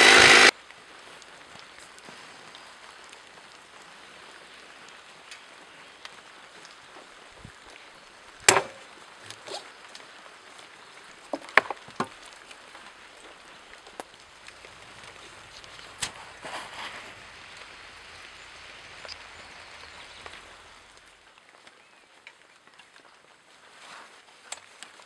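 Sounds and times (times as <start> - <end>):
chainsaw knocking on wood: 0.0 - 0.5, 8.5 - 8.8
faint hiss: 0.0 - 25.0.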